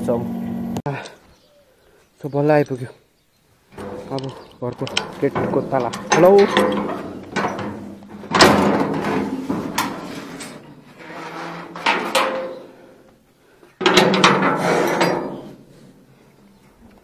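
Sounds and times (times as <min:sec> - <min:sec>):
metal gate clanking and rattling: 0:03.8 - 0:13.2, 0:13.8 - 0:16.2.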